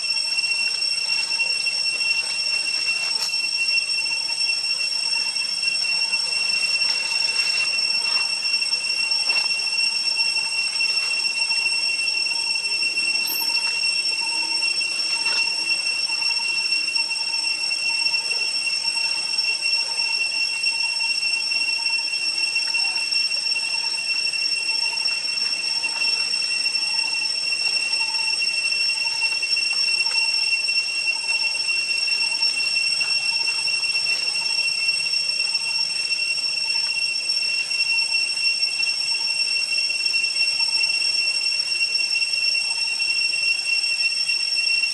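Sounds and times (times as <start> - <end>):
insects droning: 0.0 - 44.9
steady high-pitched tone: 0.0 - 44.9.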